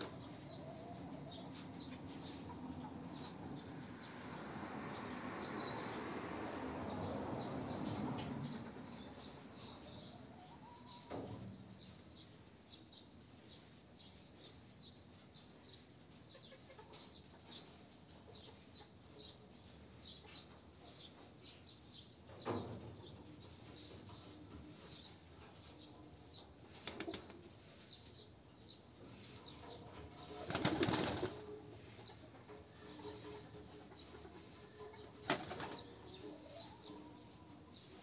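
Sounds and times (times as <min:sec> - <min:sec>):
pigeon wings flapping: 0:30.4 - 0:31.4, 0:35.3 - 0:35.8.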